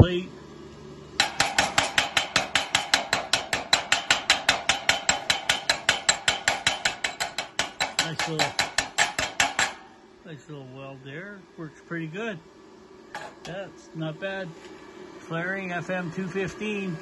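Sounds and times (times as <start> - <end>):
hammer tapping on steel plate: 1.2 - 9.8.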